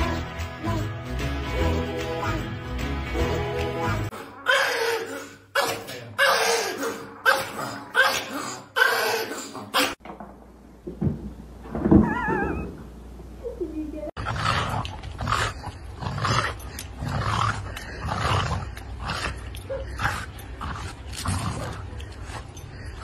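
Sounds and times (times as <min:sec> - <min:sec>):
dog growling: 0:04.1 - 0:10.0, 0:14.2 - 0:22.4.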